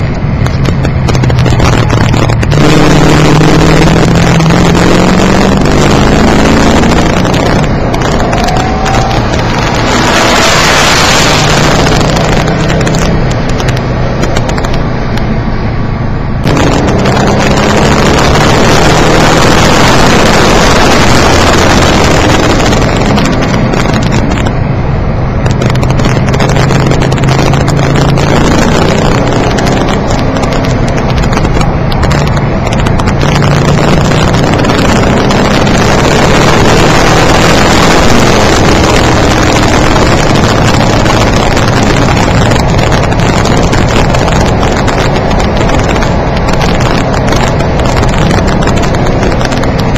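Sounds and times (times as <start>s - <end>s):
distorted car engine: 0.0s - 49.9s
road noise: 0.0s - 49.9s.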